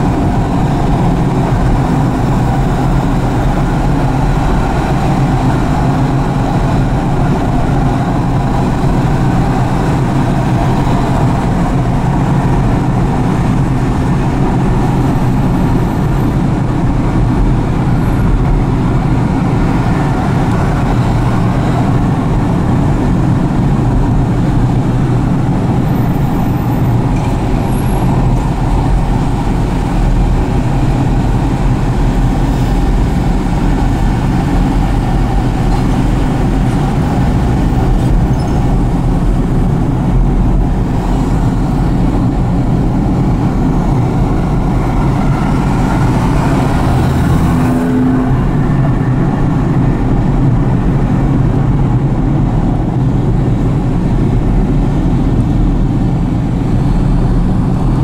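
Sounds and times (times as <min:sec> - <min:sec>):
car engine and tyre rumble: 0:00.0 - 0:58.0
surrounding traffic: 0:00.0 - 0:58.0.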